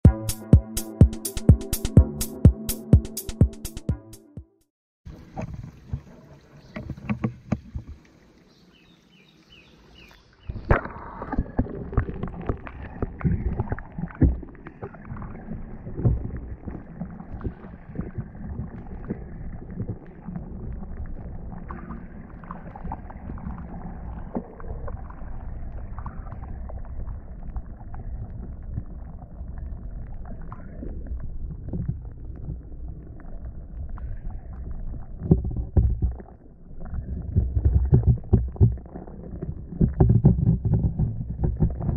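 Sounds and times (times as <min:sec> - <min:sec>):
underwater water rumble: 0:10.4 - 0:41.9.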